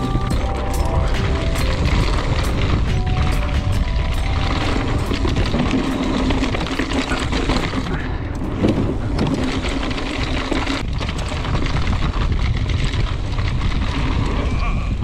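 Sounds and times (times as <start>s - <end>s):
steady buzz: 0.0s - 7.8s
bike rattling and clicking: 0.0s - 15.0s
tyre rumble over loose dirt: 0.0s - 15.0s
wind rush on microphone: 0.0s - 15.0s.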